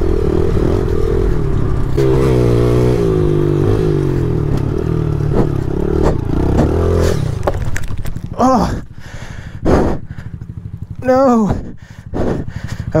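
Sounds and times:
motorbike engine revving: 0.0 - 13.0.

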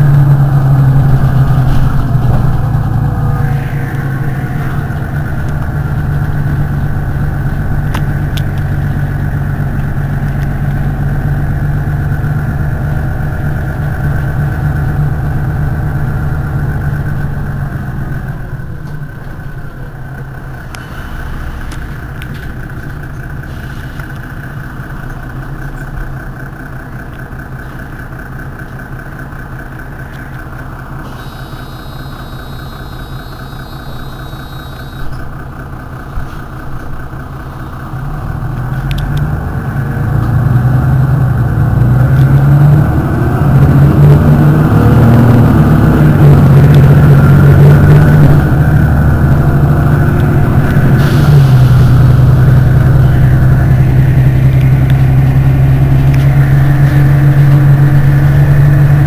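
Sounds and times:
bus engine idling: 0.0 - 59.0.

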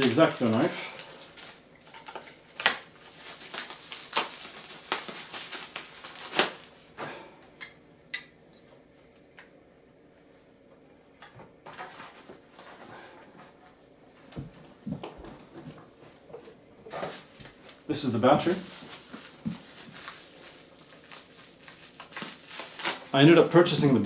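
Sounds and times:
bubble wrap crinkling: 0.0 - 7.0, 16.9 - 24.0
sharp crackles: 2.5 - 6.9, 18.6 - 24.0.

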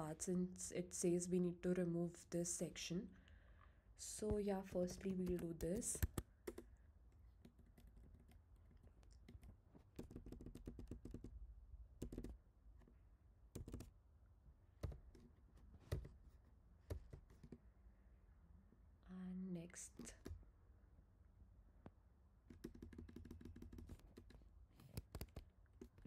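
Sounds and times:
computer keyboard keystrokes: 4.8 - 6.7, 7.4 - 11.3, 12.0 - 12.4, 13.5 - 13.9, 14.8 - 16.2, 16.8 - 17.6, 22.5 - 26.0.

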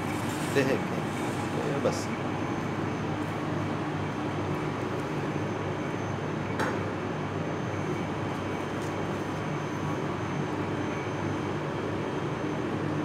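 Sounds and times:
ventilation fan humming: 0.0 - 13.0.

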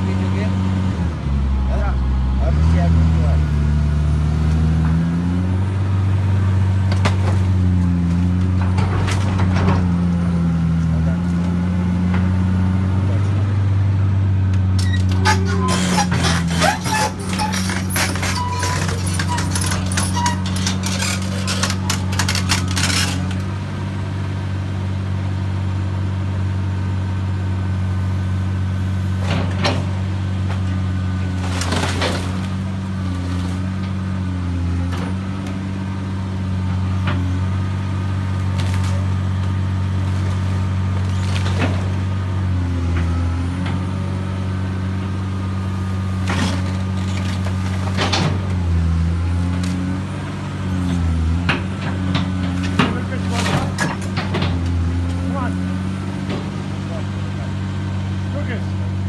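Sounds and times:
excavator diesel engine running: 0.0 - 59.0
roofing and timber cracking: 14.6 - 23.6, 30.5 - 34.1.

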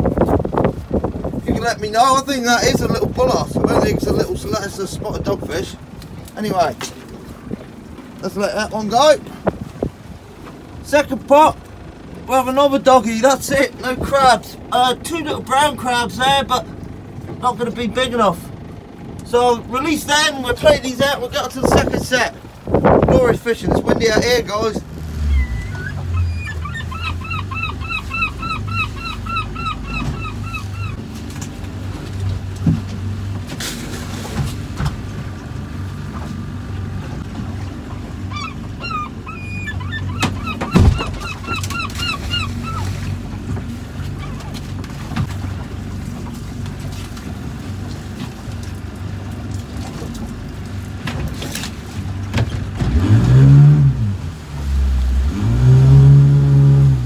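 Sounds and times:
outboard motor running: 0.0 - 57.0
wind: 0.0 - 57.0
gull calling: 25.1 - 31.0, 38.2 - 43.3, 44.0 - 44.6.

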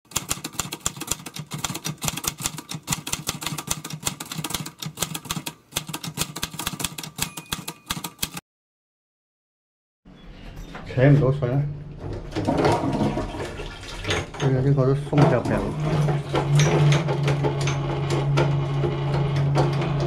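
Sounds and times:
typewriter key clicks: 0.1 - 8.4.

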